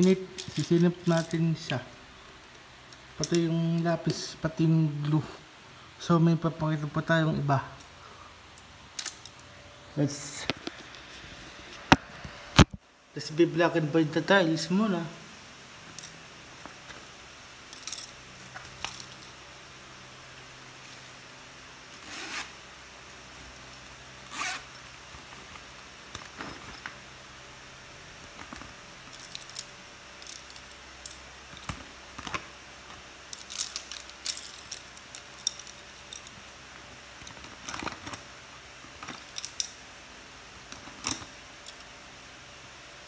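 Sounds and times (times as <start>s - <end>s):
pencils clicking and clattering: 28.2s - 32.5s, 33.3s - 36.4s, 37.2s - 38.3s.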